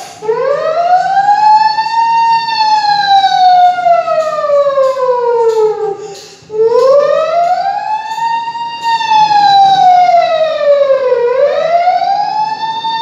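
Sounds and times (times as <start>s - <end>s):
man imitating siren with voice: 0.2s - 13.0s.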